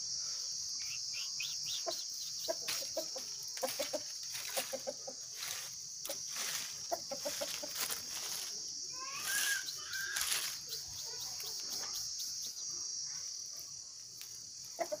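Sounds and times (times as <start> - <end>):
steady high hiss: 0.0 - 14.9
rooster clucking: 1.7 - 5.3, 6.1 - 8.0, 14.8 - 15.0.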